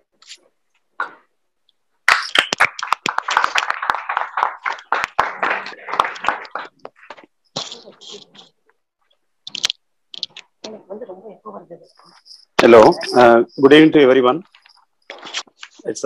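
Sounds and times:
people clapping: 0:02.0 - 0:08.3.

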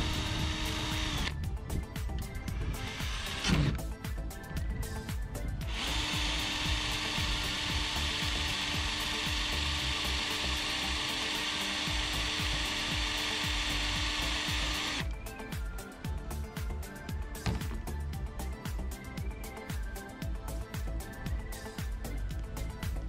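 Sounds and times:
cordless drill running: 0:00.0 - 0:01.4, 0:02.6 - 0:03.8, 0:05.6 - 0:15.1.

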